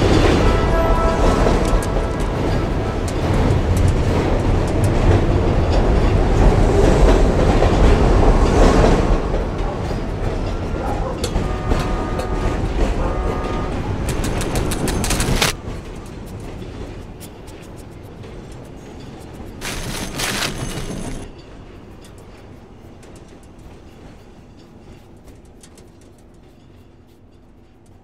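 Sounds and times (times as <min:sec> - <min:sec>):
low rumble with rattling clatter: 0:00.0 - 0:21.3
sharp clicks: 0:13.7 - 0:15.6.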